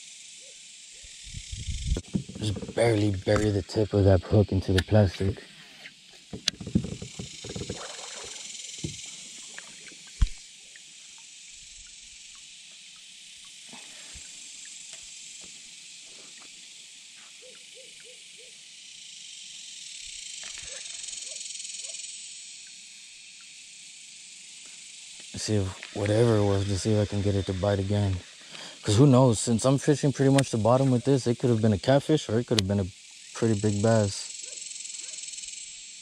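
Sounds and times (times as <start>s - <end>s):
insects buzzing: 0.0s - 36.0s
faint ticks: 6.1s - 16.6s, 20.4s - 22.0s.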